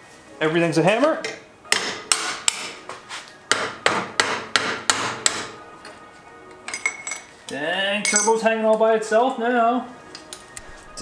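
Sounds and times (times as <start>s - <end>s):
hammer striking metal: 1.2s - 2.8s, 3.5s - 6.0s, 8.0s - 8.4s.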